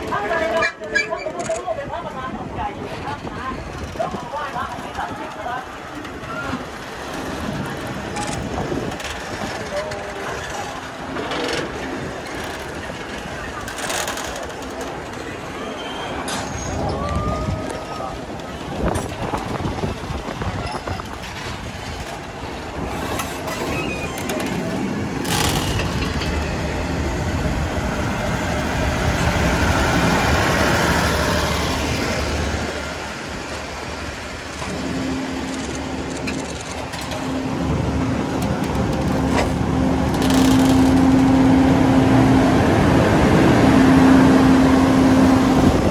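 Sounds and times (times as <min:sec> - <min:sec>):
train wheels rattling on rails: 0:00.0 - 0:45.9.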